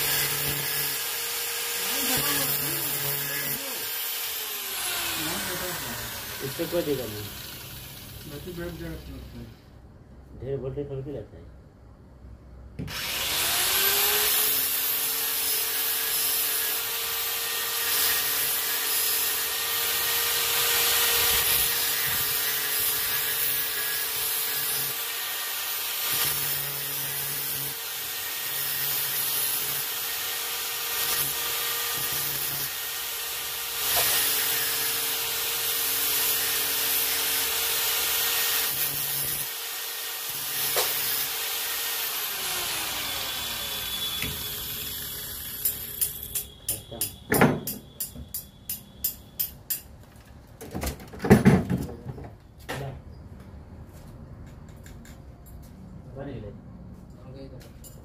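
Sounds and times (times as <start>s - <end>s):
power tool grinding metal: 0.0s - 9.4s, 12.9s - 47.1s.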